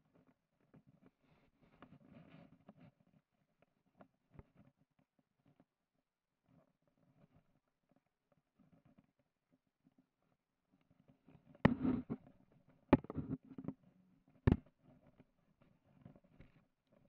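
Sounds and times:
sharp knocks on wooden board: 0:13.0 - 0:13.4.

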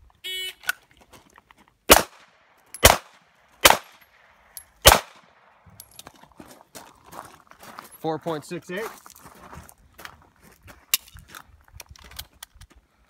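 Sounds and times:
pistol shots: 0:01.9 - 0:04.0, 0:04.8 - 0:05.5.

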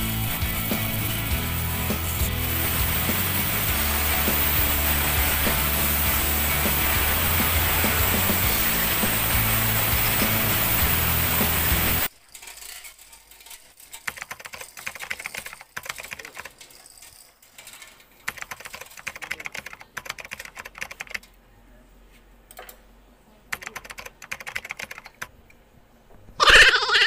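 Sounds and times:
metallic clicking and rattling: 0:11.6 - 0:21.4.

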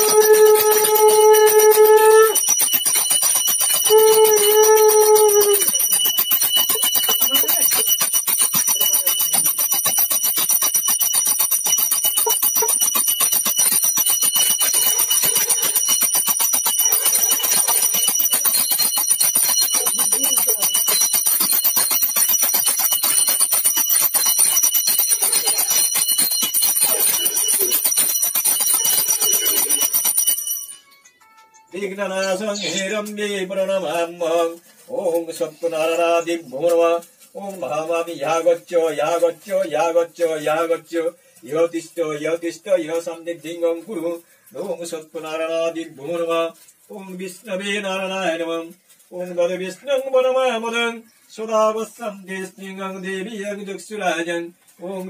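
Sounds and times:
hand bell rung rapidly: 0:00.0 - 0:32.8.

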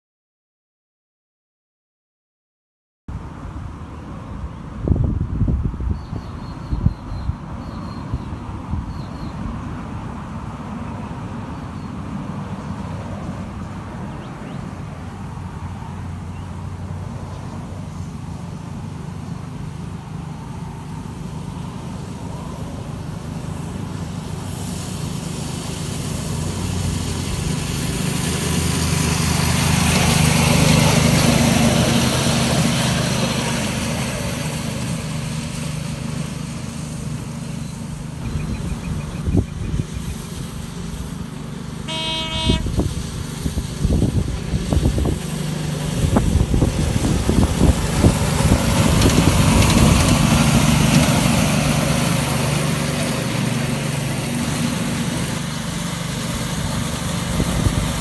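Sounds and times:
rail noise: 0:03.1 - 0:58.0
miniature locomotive drone: 0:10.1 - 0:58.0
short horn toot: 0:41.8 - 0:42.9.

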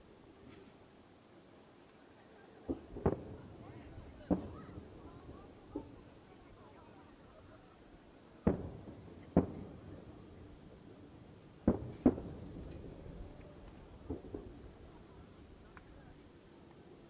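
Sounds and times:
firework booms with echo: 0:02.7 - 0:06.1, 0:08.4 - 0:10.5, 0:11.6 - 0:13.0, 0:14.0 - 0:14.9.

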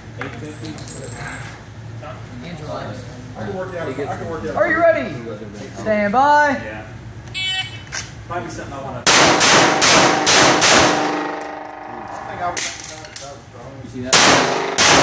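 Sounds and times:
pistol shots echoing: 0:09.1 - 0:11.6, 0:14.1 - 0:15.0.

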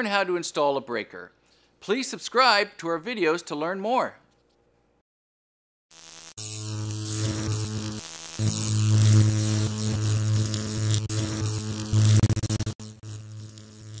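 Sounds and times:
electrical buzzing hum: 0:05.9 - 0:14.0
crackling hiss: 0:06.3 - 0:14.0.

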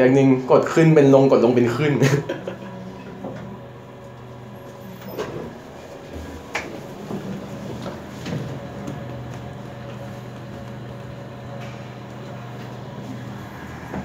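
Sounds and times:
elevator car humming: 0:00.0 - 0:14.0
elevator doors sliding open: 0:01.7 - 0:14.0.

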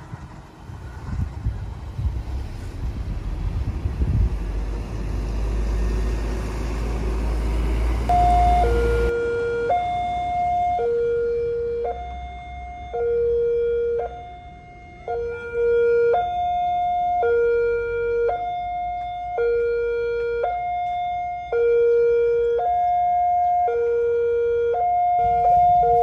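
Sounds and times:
two-tone warning siren: 0:08.1 - 0:26.0.

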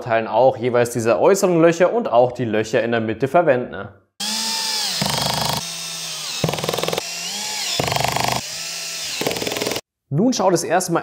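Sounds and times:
drill clutch clicking: 0:04.2 - 0:09.8
drill motor whine: 0:04.2 - 0:09.8.

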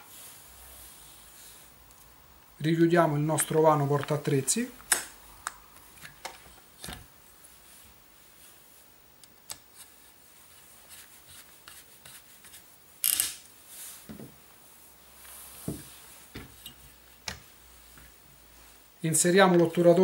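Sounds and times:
soft rubbing of parts: 0:05.6 - 0:20.0.

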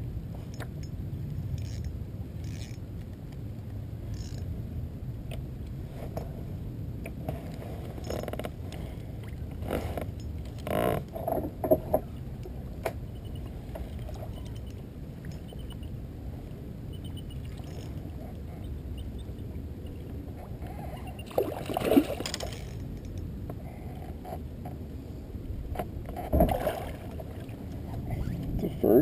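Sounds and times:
wind and water rumble: 0:00.0 - 0:29.0
fishing reel gears ticking: 0:01.6 - 0:02.8, 0:04.1 - 0:04.5.

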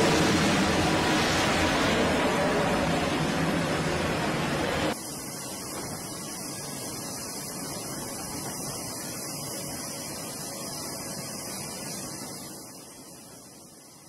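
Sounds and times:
jet engine roar: 0:00.0 - 0:14.0
steady hiss: 0:04.9 - 0:14.0.

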